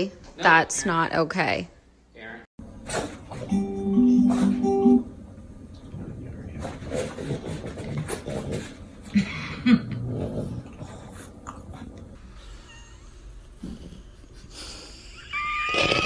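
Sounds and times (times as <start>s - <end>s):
dog grunts: 6.6s - 11.6s
dog growling and grumbling: 6.6s - 12.2s.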